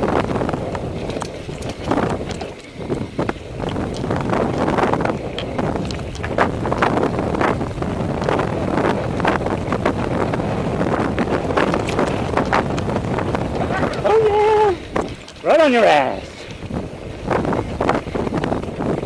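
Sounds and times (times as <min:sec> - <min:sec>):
bike clicking and knocking: 0:00.0 - 0:13.8
tyre noise: 0:00.0 - 0:19.0
wind rushing over microphone: 0:00.0 - 0:19.0.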